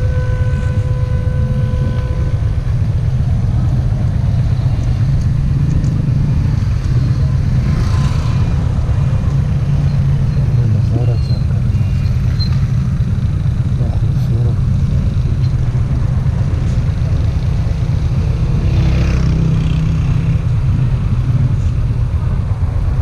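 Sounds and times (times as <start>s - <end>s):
vehicle passing: 0.0s - 11.1s
motorcycle engine idling: 0.0s - 23.0s
voices: 9.0s - 14.8s.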